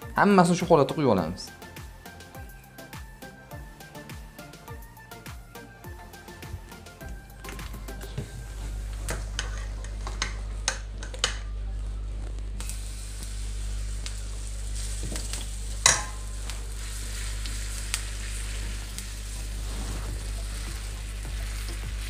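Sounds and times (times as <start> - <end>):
low hum: 5.8 - 22.0
batter sizzling in hot oil: 12.6 - 22.0
utensil knocking on pan: 15.8 - 16.2.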